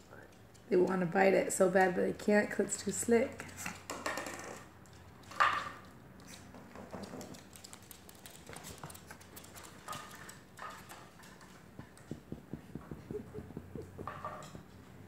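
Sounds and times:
claws and bottle tapping floor: 3.8s - 5.9s, 6.5s - 15.0s.

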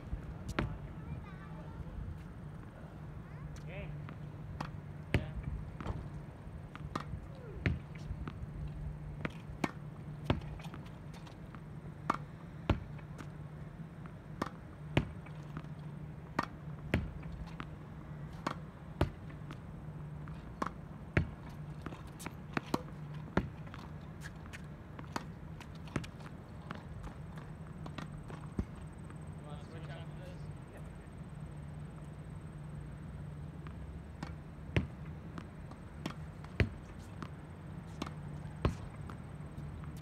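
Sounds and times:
steady low hum: 0.0s - 40.0s
ball bouncing on hard court: 0.5s - 0.8s, 3.6s - 8.5s, 9.2s - 13.3s, 14.0s - 29.3s, 33.6s - 40.0s
racket striking tennis ball: 3.6s - 13.3s, 14.0s - 29.3s, 33.7s - 40.0s.

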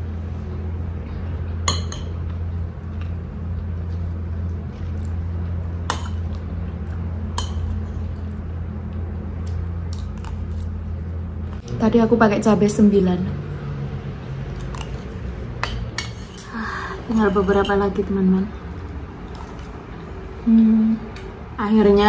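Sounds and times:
steady low hum: 0.0s - 22.0s
metal spoon clinking on plate: 15.6s - 16.5s.

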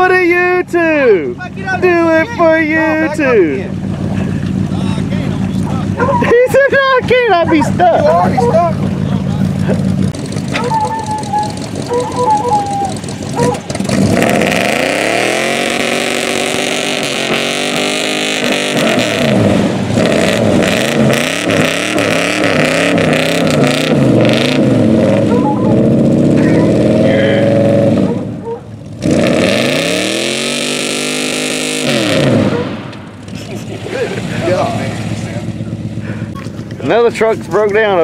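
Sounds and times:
truck engine revving: 0.0s - 38.0s.

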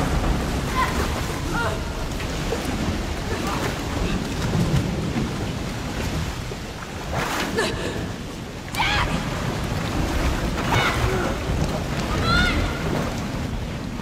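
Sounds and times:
water rushing and churning: 0.0s - 14.0s.

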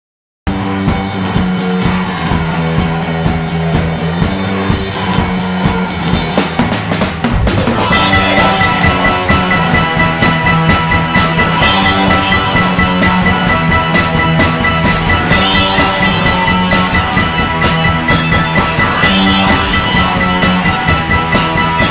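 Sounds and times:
drum kit beat: 0.5s - 21.9s
rock band playing: 0.5s - 21.9s
steady high note: 7.3s - 10.2s, 11.6s - 21.9s.

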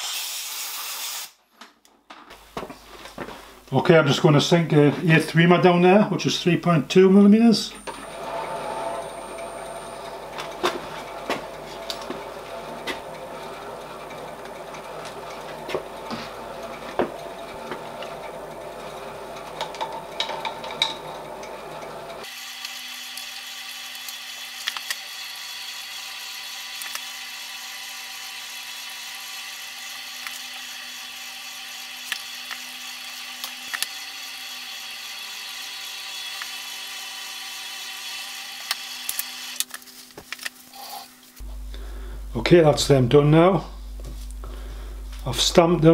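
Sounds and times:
machine spindle running: 7.7s - 39.7s.

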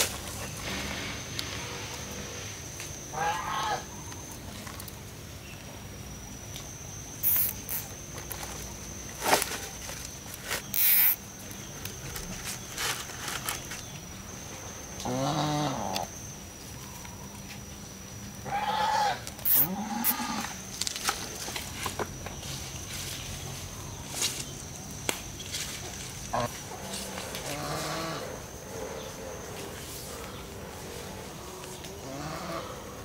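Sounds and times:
farm animal calling: 3.1s - 4.0s, 15.0s - 16.1s, 18.4s - 20.6s, 26.3s - 28.4s.

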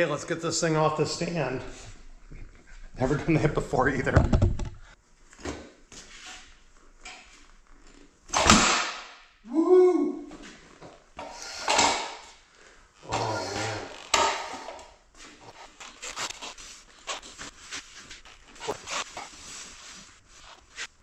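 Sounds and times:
stand knocking and rattling: 4.0s - 4.8s
heavy thumps and metal clank: 4.0s - 4.9s.

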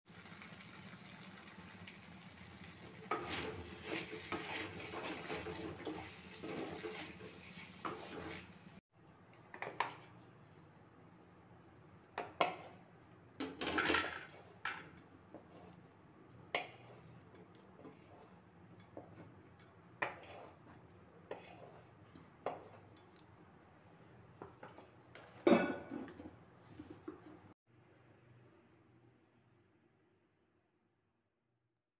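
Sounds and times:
food sizzling: 0.1s - 8.8s
spoon scraping metal plate: 20.0s - 22.8s.

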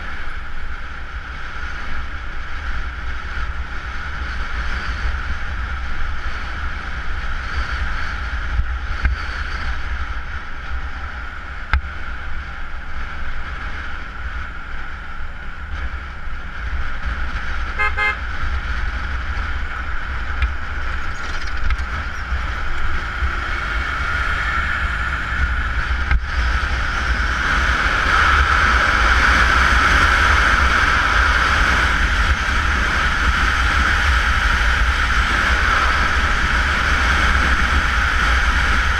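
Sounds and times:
motorcycle engine and road noise: 0.0s - 38.9s
wind buffeting microphone: 0.0s - 38.9s
vehicle horn toot: 17.7s - 18.2s.

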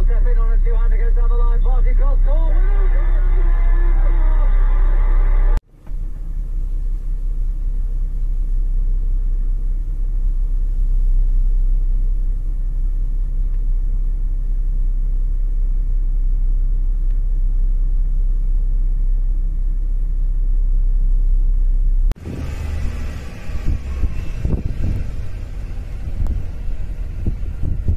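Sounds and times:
storm wind on microphone: 22.2s - 27.9s.

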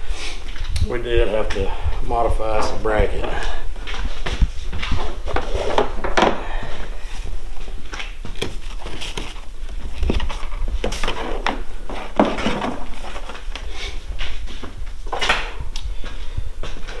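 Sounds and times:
fabric cover rustling: 7.6s - 12.2s.

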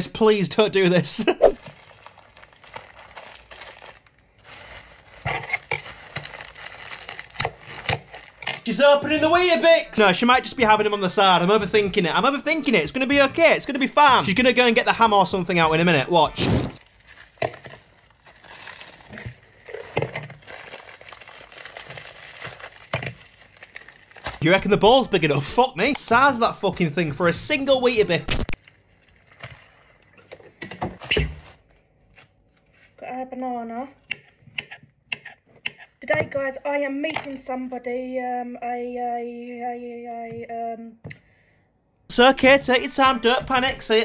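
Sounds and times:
cereal biscuit crumbling: 1.6s - 8.7s, 16.5s - 24.4s
plastic bag crinkling: 1.6s - 8.7s, 16.4s - 24.7s, 28.2s - 33.0s
sharp packet rustles: 1.6s - 8.7s, 16.4s - 24.4s, 28.2s - 30.3s.

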